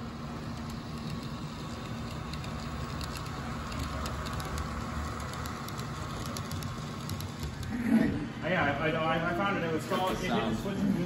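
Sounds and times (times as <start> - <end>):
model train motor hum: 0.0 - 7.8.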